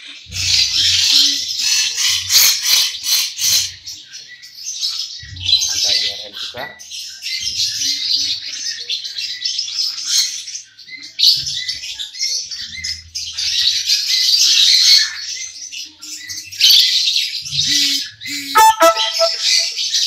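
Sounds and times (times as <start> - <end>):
parrots chirping and squawking: 0.1 - 3.8.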